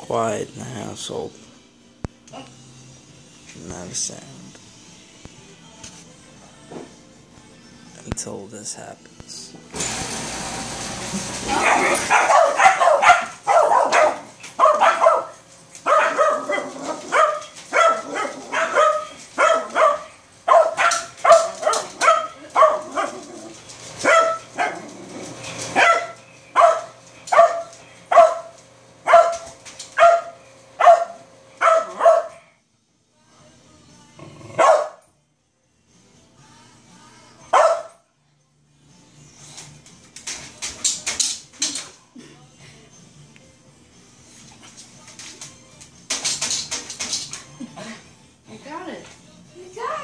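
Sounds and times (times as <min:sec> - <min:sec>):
garbage compactor humming: 0:09.7 - 0:15.2, 0:15.9 - 0:31.8
dog barking: 0:11.5 - 0:23.3, 0:24.0 - 0:24.8, 0:25.8 - 0:32.5, 0:34.6 - 0:35.1, 0:37.5 - 0:38.0.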